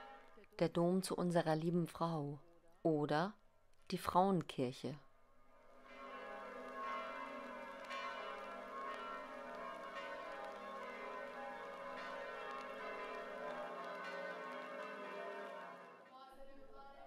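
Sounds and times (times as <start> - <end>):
church bells pealing: 5.8 - 16.1.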